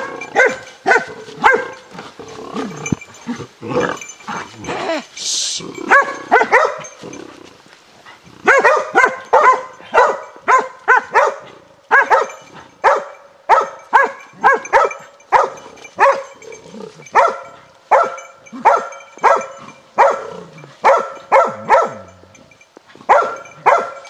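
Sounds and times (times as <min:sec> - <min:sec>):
dog barking: 0:00.0 - 0:01.9, 0:05.8 - 0:07.0, 0:08.4 - 0:16.4, 0:17.0 - 0:22.2, 0:23.1 - 0:24.0.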